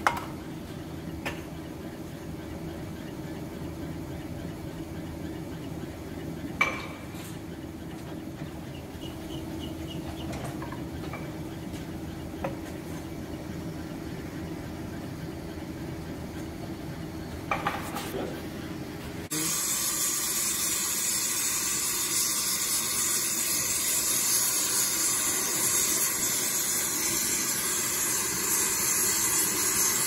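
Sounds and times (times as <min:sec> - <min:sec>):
lathe humming: 0:01.8 - 0:17.4.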